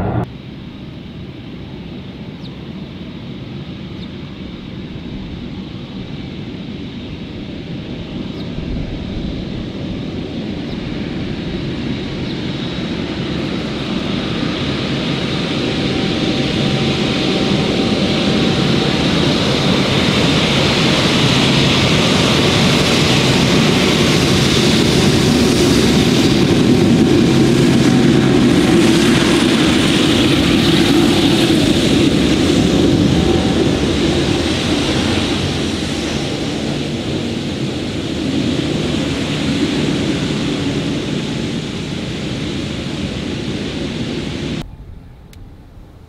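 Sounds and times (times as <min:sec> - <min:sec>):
jet engines roaring with fan whine: 0:00.0 - 0:46.0.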